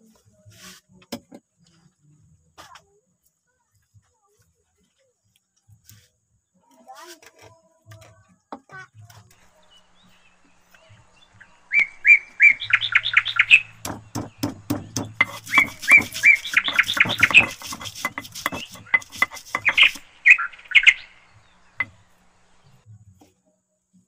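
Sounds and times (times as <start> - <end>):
small bird chirping: 8.8 - 22.9
stone scraping on stone: 12.5 - 22.6.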